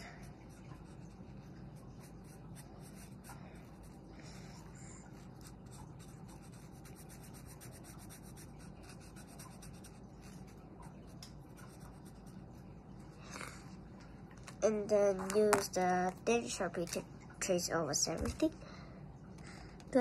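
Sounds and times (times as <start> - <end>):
marker scribbling on paper: 5.4 - 10.5.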